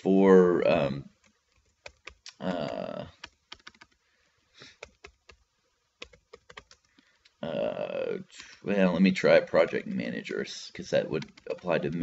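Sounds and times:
computer keyboard typing: 1.2 - 4.0, 4.7 - 7.0, 10.7 - 12.0.

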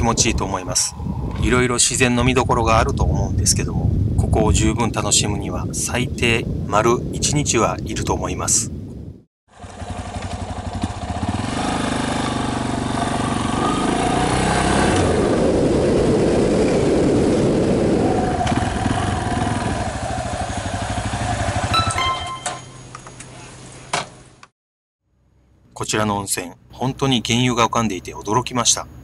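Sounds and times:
motorcycle engine running: 9.5 - 14.3, 18.5 - 22.4.

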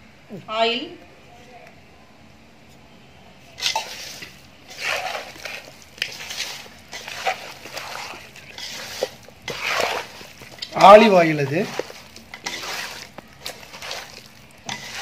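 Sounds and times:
hand mixing wet chicken: 3.6 - 15.0.

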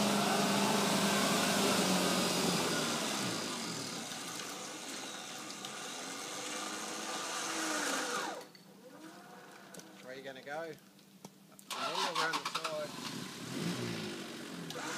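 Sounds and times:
off-road vehicle engine running: 0.0 - 4.2, 11.7 - 14.9.

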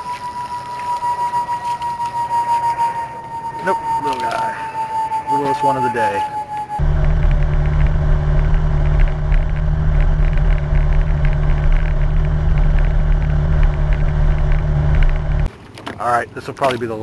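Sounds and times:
outboard motor running: 6.8 - 16.0.

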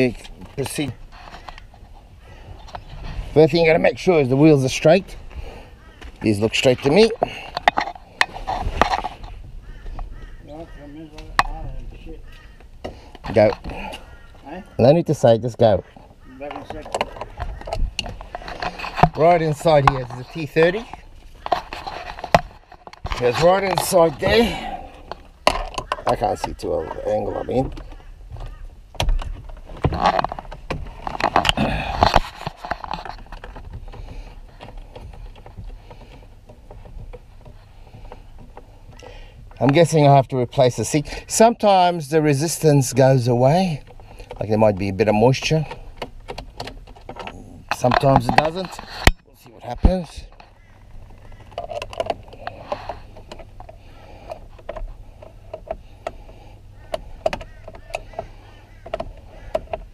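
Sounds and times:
tool clicking and scraping plastic: 27.6 - 39.8, 43.8 - 59.9.

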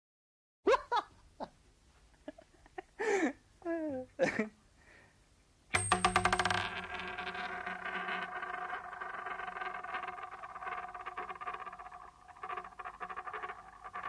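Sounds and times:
coin spinning on hard surface: 5.8 - 14.0.

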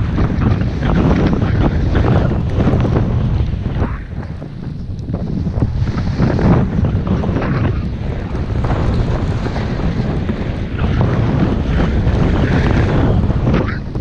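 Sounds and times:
wind on microphone: 0.0 - 14.0
skis swishing through snow: 5.2 - 13.6.

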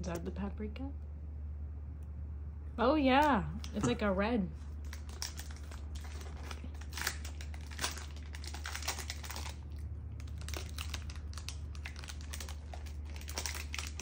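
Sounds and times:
plastic wrapper crinkling and tearing: 4.7 - 14.0.

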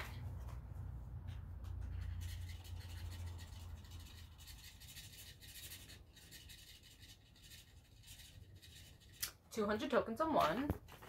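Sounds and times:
scratch card being scratched: 1.7 - 9.4.

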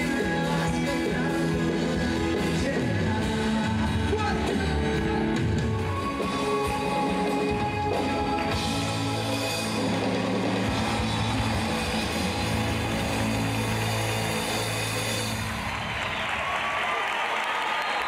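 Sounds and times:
man singing: 0.0 - 10.3
live pop-rock band: 0.0 - 16.5.

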